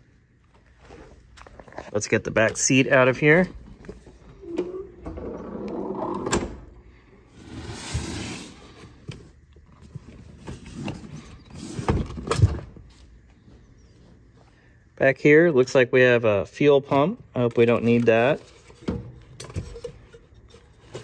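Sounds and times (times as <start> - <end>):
vinyl seat rustling and scraping: 7.3 - 14.4.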